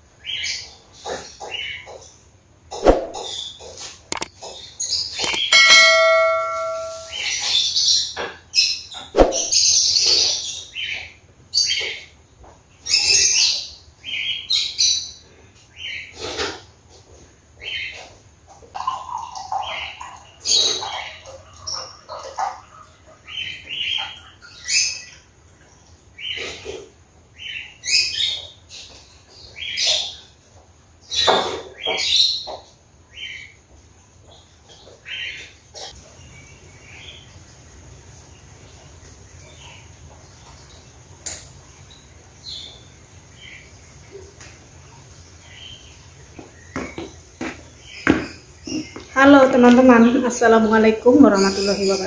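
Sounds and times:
birds chirping: 0:02.8 - 0:07.6, 0:45.0 - 0:52.0
sharp click: 0:04.1 - 0:04.3, 0:05.2 - 0:05.5
bird chirps: 0:05.2 - 0:07.8.

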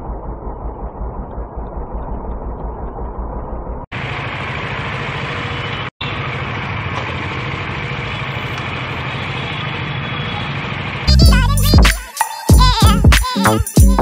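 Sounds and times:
motorcycle engine running: 0:00.0 - 0:08.0.

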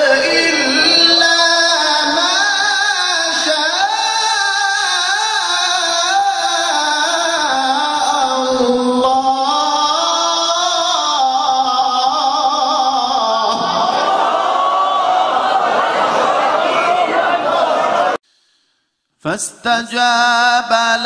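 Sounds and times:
man chanting melodic recitation: 0:00.0 - 0:13.7, 0:19.2 - 0:21.0.

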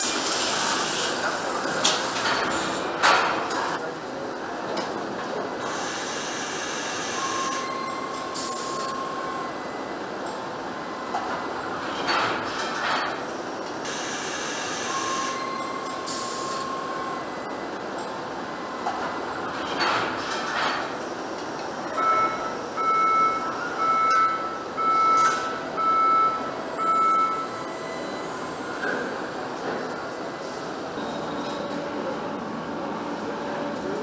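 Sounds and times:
machinery hum: 0:20.3 - 0:34.0
warning beeper: 0:22.0 - 0:29.4.

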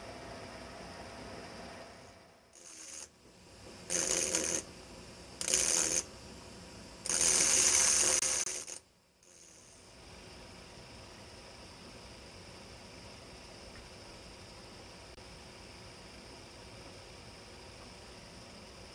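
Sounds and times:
high-pitched engraving drill whine: 0:01.8 - 0:03.1, 0:03.9 - 0:04.7, 0:05.4 - 0:06.1, 0:07.0 - 0:09.8.

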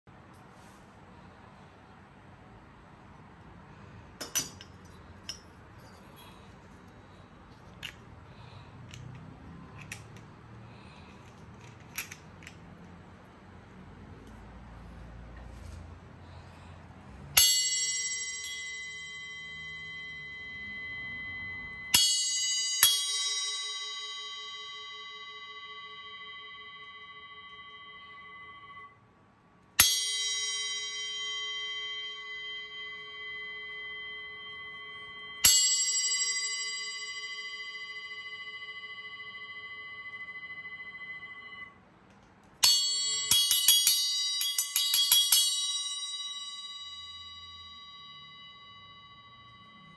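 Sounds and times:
bell cymbal struck with drumstick: 0:17.4 - 0:28.9, 0:29.8 - 0:41.8, 0:42.6 - 0:49.9.

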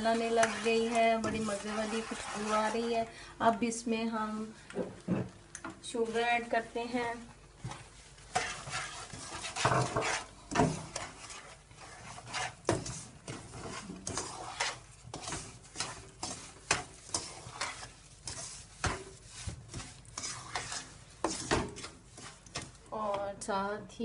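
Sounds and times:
wooden spatula scraping a pan: 0:00.0 - 0:03.1, 0:05.9 - 0:23.2
light sizzle: 0:00.0 - 0:23.9.

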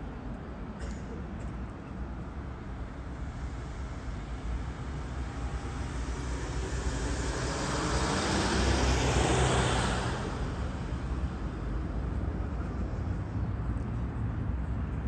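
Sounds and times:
low traffic rumble: 0:00.0 - 0:15.0
car driving past: 0:05.6 - 0:10.6.

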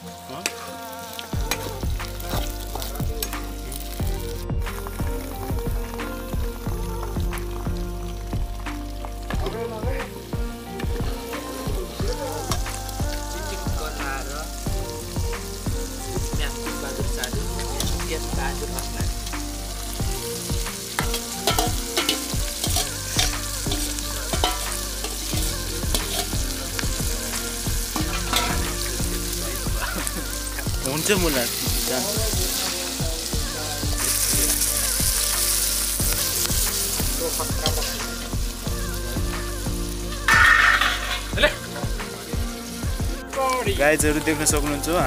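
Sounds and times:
food sizzling in hot oil: 0:00.0 - 0:45.0
ladle clinking and scraping pan: 0:21.1 - 0:26.3, 0:28.0 - 0:28.7, 0:40.3 - 0:41.3.

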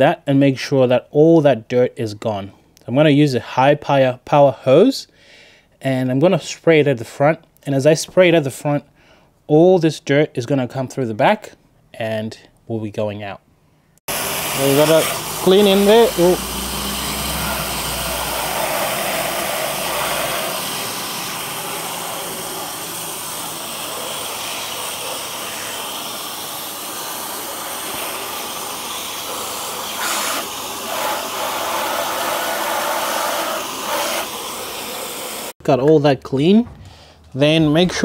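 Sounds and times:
hose spraying water: 0:14.1 - 0:35.6.

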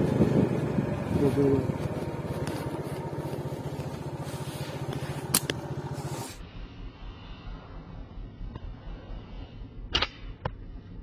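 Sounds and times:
motorcycle engine running: 0:00.0 - 0:11.0
quiet outdoor background: 0:00.0 - 0:11.0
sharp click: 0:09.9 - 0:10.6.

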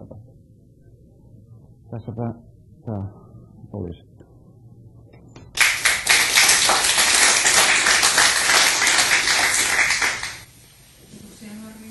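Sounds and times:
audience applauding: 0:05.6 - 0:10.5.

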